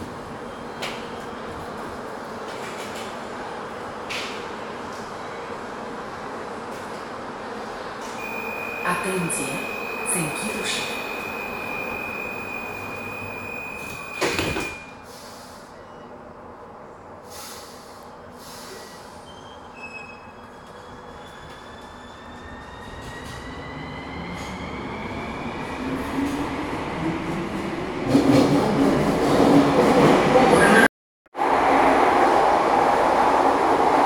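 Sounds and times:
train running noise: 7.8 - 14.8
train motor whine: 8.2 - 14.8
door warning tone: 8.2 - 15.0.

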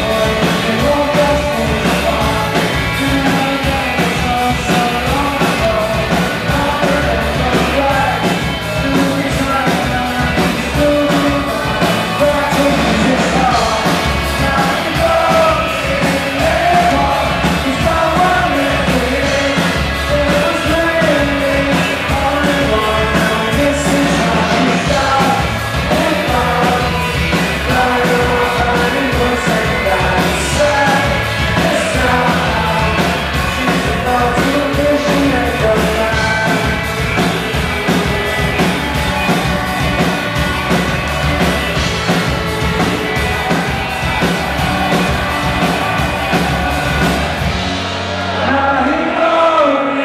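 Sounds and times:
person singing: 0.0 - 38.2, 41.5 - 50.0
drum kit: 0.0 - 50.0
electric guitars: 0.0 - 50.0.

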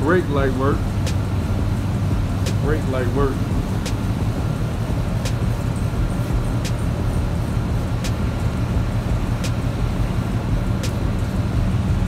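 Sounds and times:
car engine idling: 0.0 - 12.0
sharp repeating click: 2.4 - 2.7.

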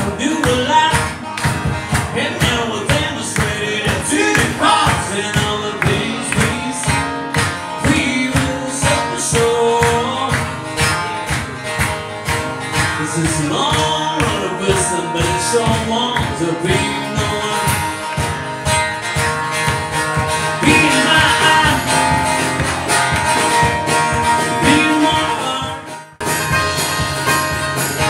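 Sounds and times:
man singing: 0.0 - 11.0, 12.8 - 18.3, 20.4 - 22.7, 23.8 - 26.2
acoustic guitars strumming: 0.0 - 28.0.

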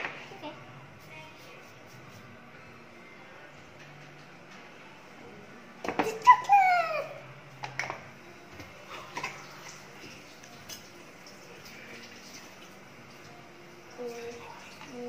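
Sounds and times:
child's voice: 6.0 - 7.2, 13.9 - 15.0.

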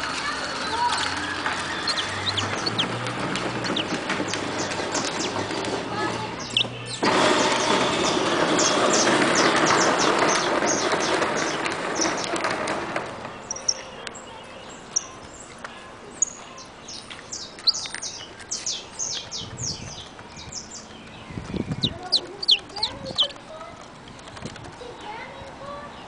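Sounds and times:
broad rushing noise: 0.0 - 13.9
finch chirping: 0.6 - 12.4, 13.4 - 15.5, 16.1 - 23.4.

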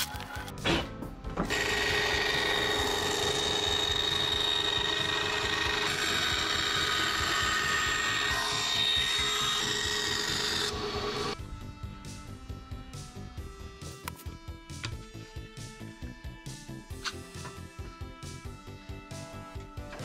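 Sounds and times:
bandsaw cutting wood: 1.4 - 11.4.

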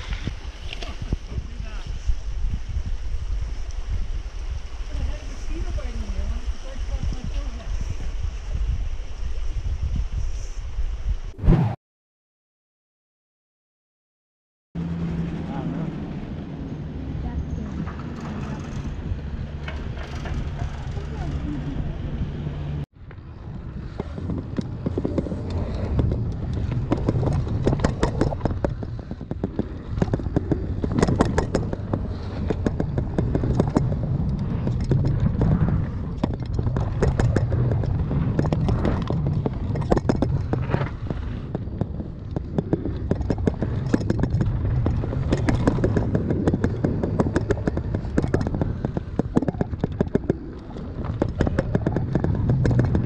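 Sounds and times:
wind buffeting microphone: 0.0 - 11.5, 15.6 - 53.0
bike rattling over bumps: 17.2 - 53.0.

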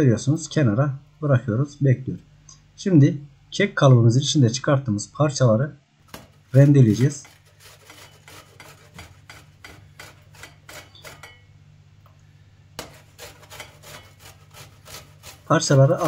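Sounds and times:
cake grated on metal grater: 6.1 - 11.5, 12.8 - 16.0.

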